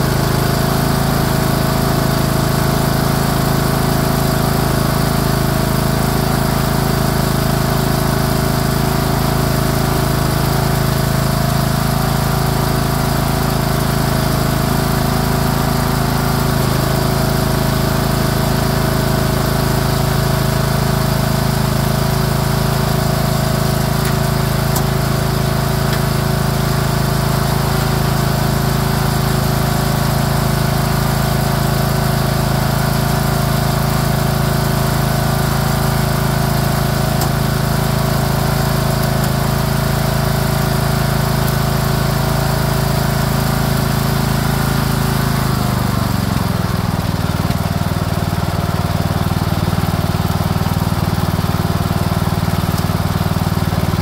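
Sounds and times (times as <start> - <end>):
lawn tractor engine running: 0.0 - 54.0.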